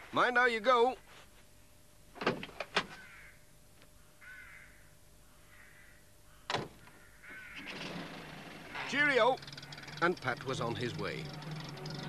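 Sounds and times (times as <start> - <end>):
faint cawing bird calls: 2.8 - 8.2, 9.4 - 10.3.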